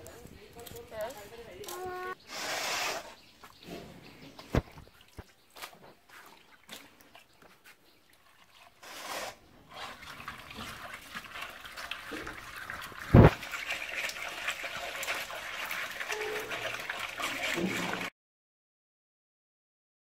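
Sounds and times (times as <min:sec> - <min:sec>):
water sloshing and swishing: 0:03.1 - 0:18.1
water splash: 0:09.7 - 0:18.1.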